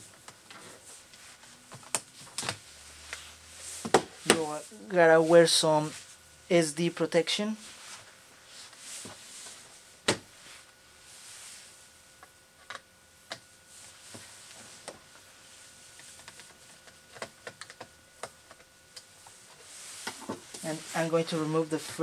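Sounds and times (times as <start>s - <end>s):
screwdriver working on laptop: 16.1s - 18.7s.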